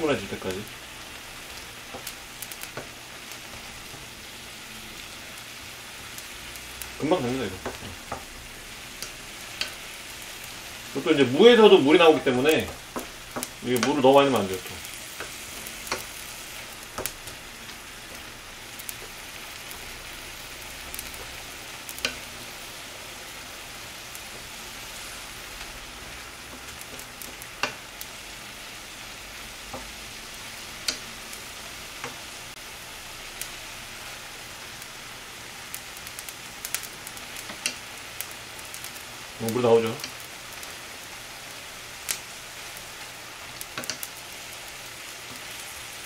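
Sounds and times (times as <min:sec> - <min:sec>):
vegetables sizzling in a frying pan: 0:00.0 - 0:46.0
wooden spatula knocking pan: 0:07.5 - 0:08.3, 0:12.6 - 0:14.0.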